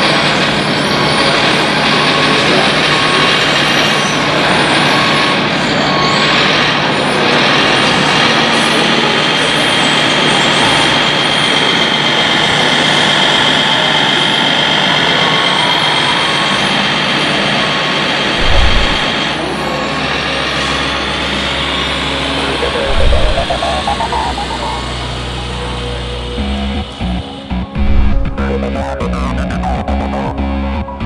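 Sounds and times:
short low thump: 18.4 - 19.1, 22.6 - 24.4, 27.8 - 28.4
high motor whine: 18.4 - 30.5.

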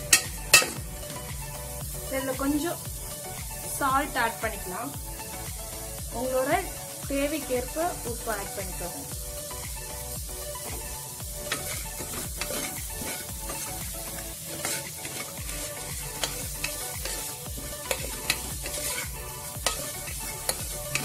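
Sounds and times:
metal spatula scraping a pot: 0.0 - 1.2, 11.4 - 21.0
vegetables sizzling in a pot: 0.0 - 21.0.

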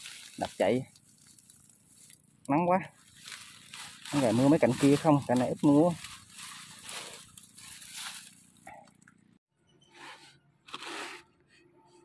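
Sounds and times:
rustling in brush and mesh: 0.0 - 9.2.

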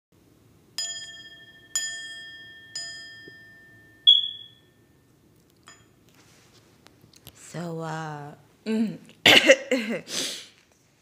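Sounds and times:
high short ping: 4.1 - 4.8.

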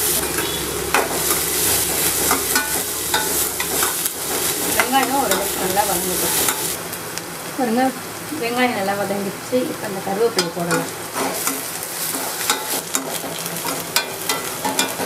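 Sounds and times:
metal spatula scraping pan: 0.0 - 6.8, 10.4 - 15.0
onions sizzling in oil: 0.0 - 15.0.

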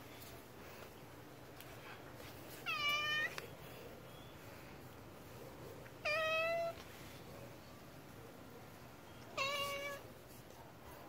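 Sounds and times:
cat meowing: 2.6 - 3.4, 6.0 - 6.8, 9.3 - 10.0.

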